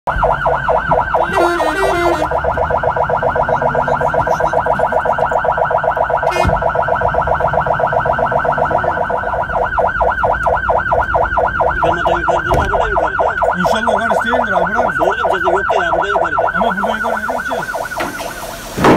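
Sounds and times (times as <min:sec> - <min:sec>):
siren yelping and wailing: 0:00.0 - 0:18.8
low engine rumble: 0:00.1 - 0:18.9
sharp siren burst: 0:00.1 - 0:18.9.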